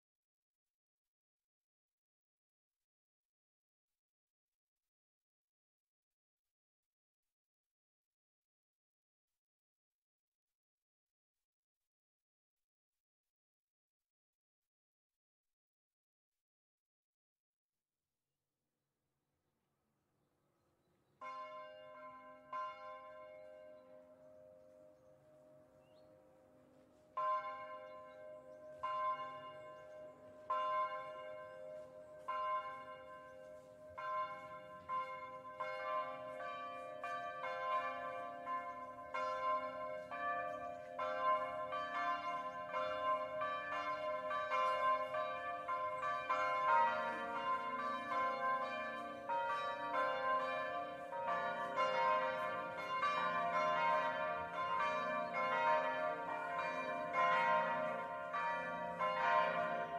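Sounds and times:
church bells ringing: 21.2 - 59.9.

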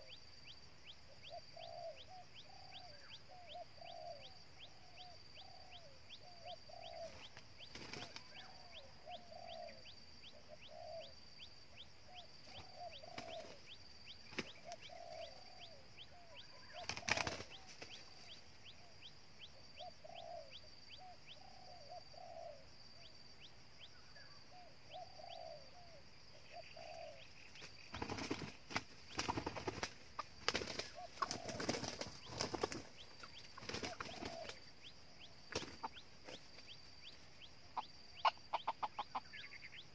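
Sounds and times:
junglefowl soft low calls: 0.0 - 13.8, 14.4 - 27.7, 30.2 - 39.9
wing flapping: 7.0 - 8.4, 12.5 - 15.2, 16.8 - 18.1, 27.6 - 34.7, 35.5 - 36.8.

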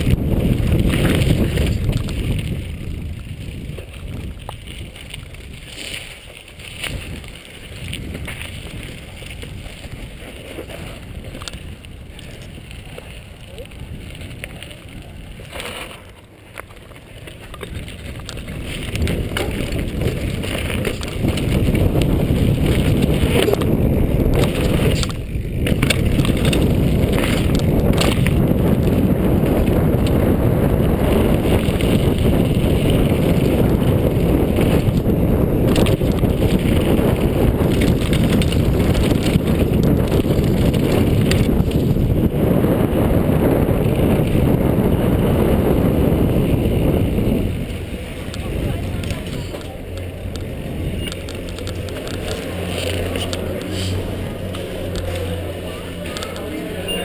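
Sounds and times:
bike knocks and rattles: 0.0 - 42.3
bike tyres rumbling over gravel: 0.0 - 57.0
wind on microphone: 0.0 - 57.0.

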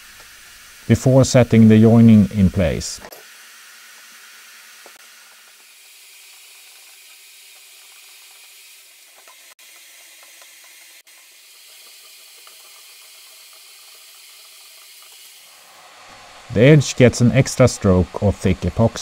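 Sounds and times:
faint hiss: 15.6 - 19.0.

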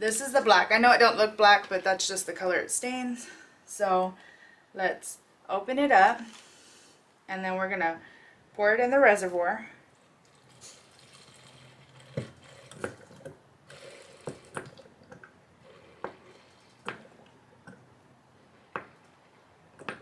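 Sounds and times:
liquid trickling and dripping: 10.0 - 13.4, 14.0 - 17.9.

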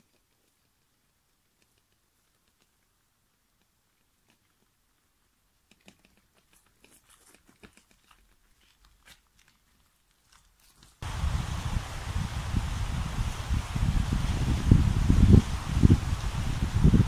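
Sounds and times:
bicycle tyres on gravel: 8.1 - 17.0
wind buffeting microphone: 11.0 - 17.0.

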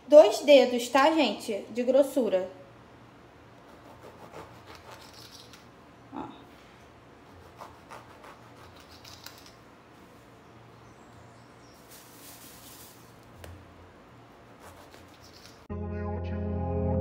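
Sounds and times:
knife sawing through bread: 3.7 - 5.0, 7.3 - 8.9
music: 15.7 - 17.0.

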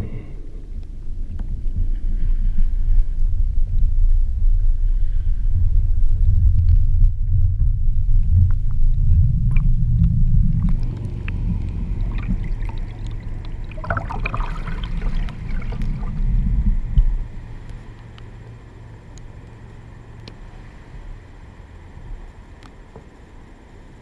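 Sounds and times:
muffled underwater rumble: 0.0 - 24.0
open air hiss: 9.0 - 24.0
water splashing and gurgling: 9.1 - 18.2.

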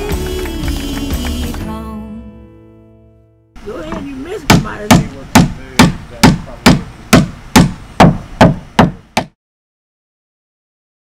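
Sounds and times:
sharp knocks: 3.9 - 9.4.

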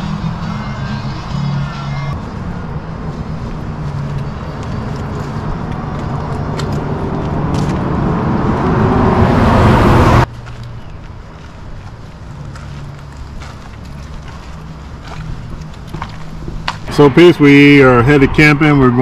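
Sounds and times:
vehicle approaching: 0.0 - 19.0.

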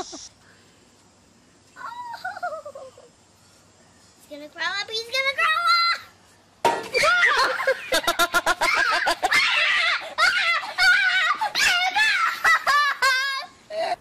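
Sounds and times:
children squealing and shrieking: 6.9 - 7.8, 8.5 - 13.5.

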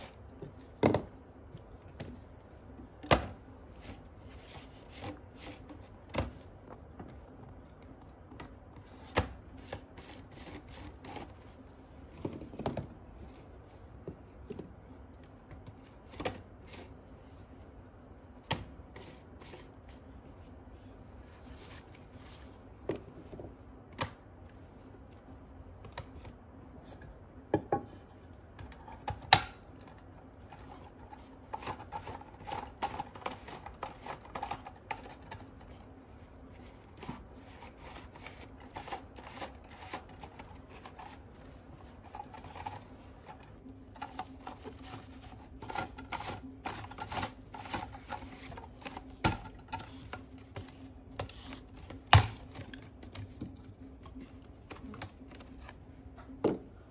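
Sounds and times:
faint steady hum: 0.0 - 56.9.

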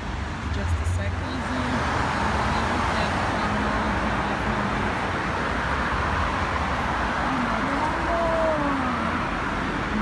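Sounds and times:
car and van engines: 0.0 - 10.0
tyres on road: 0.0 - 10.0.

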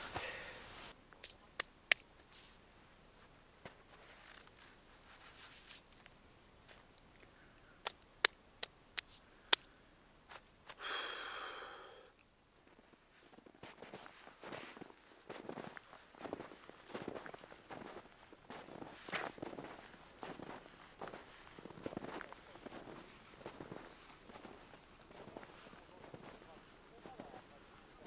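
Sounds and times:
long breathy sigh: 0.2 - 0.7, 10.8 - 12.2
sharp hand claps: 7.8 - 9.7.

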